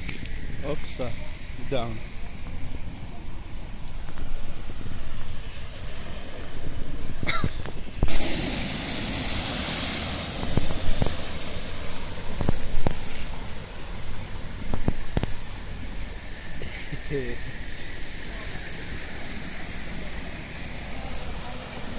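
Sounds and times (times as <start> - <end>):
wind rumble on microphone: 2.0 - 8.6, 9.6 - 13.7
car splashing through water: 4.5 - 21.9.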